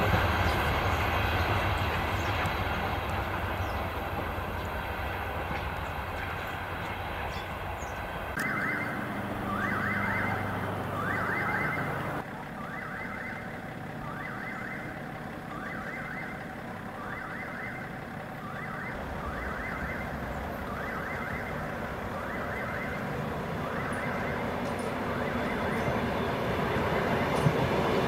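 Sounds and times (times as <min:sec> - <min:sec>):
level-crossing warning bell: 0:08.3 - 0:28.0.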